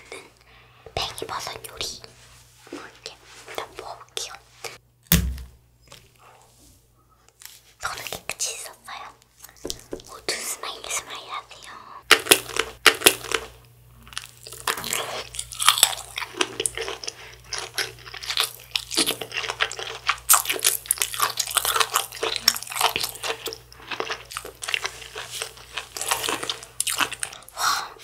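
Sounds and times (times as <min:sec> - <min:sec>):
sausage biting and chewing: 0:12.1 - 0:27.5.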